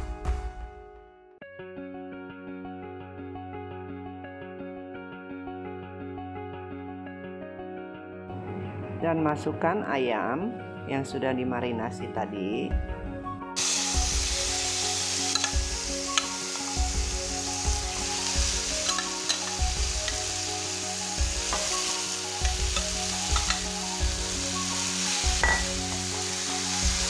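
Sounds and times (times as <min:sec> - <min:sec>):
chicken sizzling in a wok: 0:13.6 - 0:27.0.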